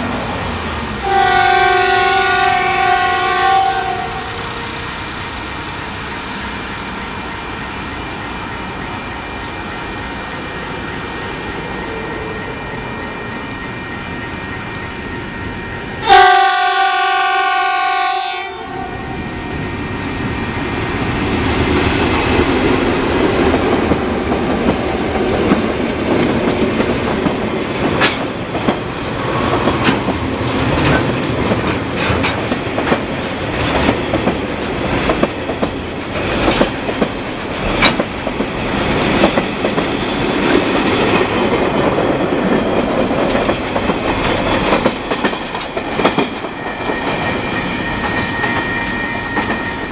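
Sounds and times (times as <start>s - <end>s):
diesel locomotive engines: 0.0s - 49.9s
train wheels clicking over rail joints: 20.8s - 49.8s.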